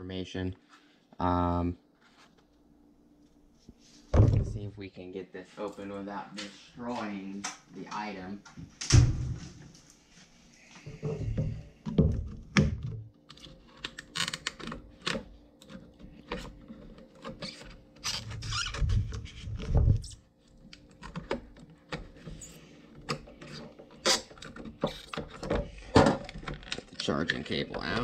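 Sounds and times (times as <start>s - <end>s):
low thumps on tabletop: 4.2s - 4.6s.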